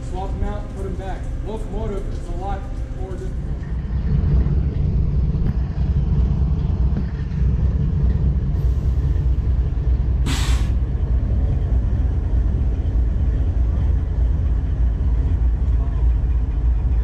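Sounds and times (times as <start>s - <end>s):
locomotive idling: 0.0s - 17.0s
compressed air hiss: 10.2s - 10.8s.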